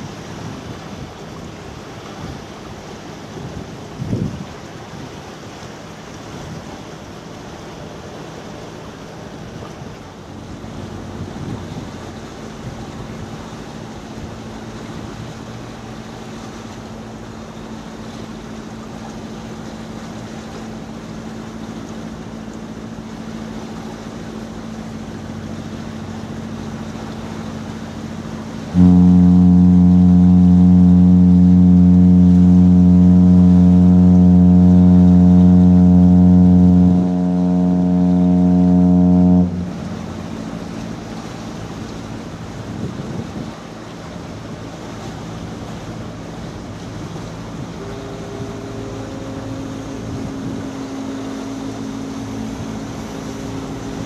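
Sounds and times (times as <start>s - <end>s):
ship's horn long low blast: 0.0s - 54.0s
steady low hum: 5.9s - 54.0s
wind noise: 42.4s - 43.8s.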